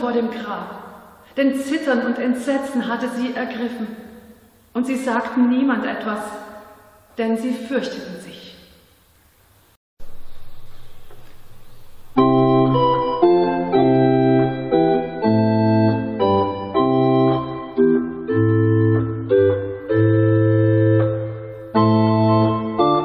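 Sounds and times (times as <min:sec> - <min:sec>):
church organ chorale: 0:10.9 - 0:23.0.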